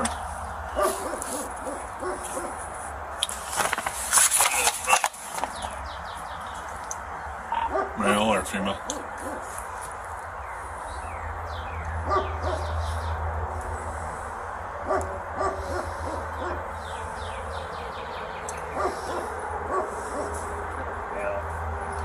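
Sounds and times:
hooting animal calls: 7.5s - 9.6s, 18.6s - 21.4s.

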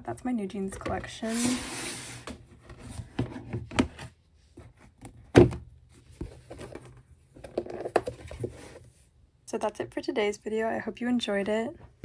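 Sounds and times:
binder cover thump: 5.3s - 5.7s.

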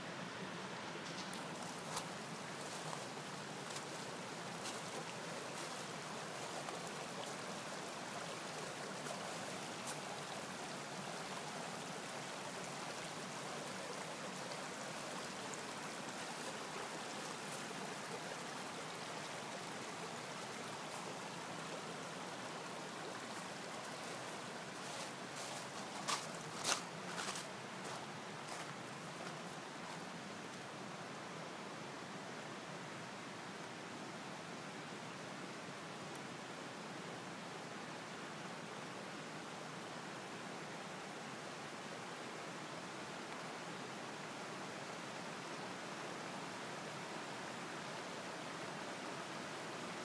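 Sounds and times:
floodwater rushing: 1.0s - 30.8s.

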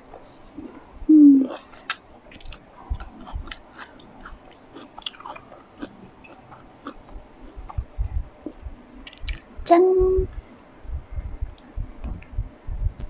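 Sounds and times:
chewing grapes: 1.4s - 9.5s
low hum: 5.4s - 13.0s.

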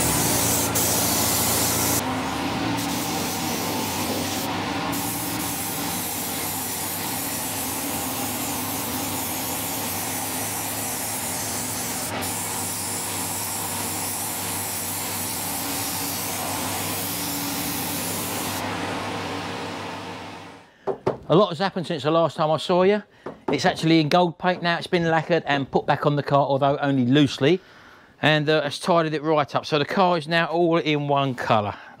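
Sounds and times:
spray gun hissing: 0.0s - 18.7s
motor humming: 0.0s - 20.6s.

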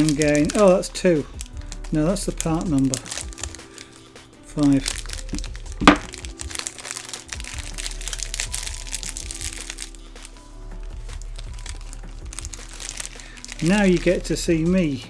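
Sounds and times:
plastic bag crinkling: 0.0s - 4.0s, 4.6s - 14.5s
background music: 0.0s - 15.0s
loud sharp knock: 5.8s - 6.1s.

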